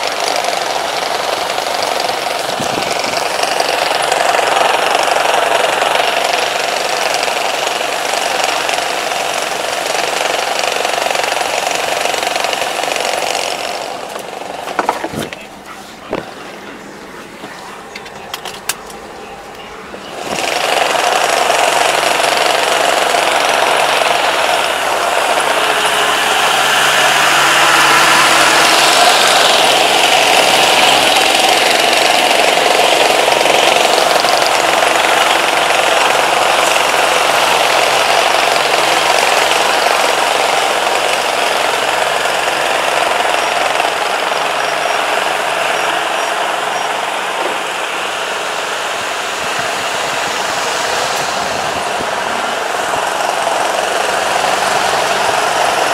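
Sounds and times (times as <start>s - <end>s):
combine harvester engine running: 0.0s - 55.9s.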